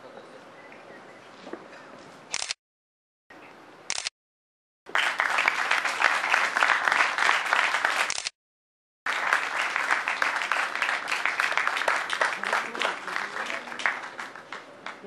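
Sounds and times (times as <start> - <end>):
audience applause: 4.9 - 8.1, 9.1 - 15.0.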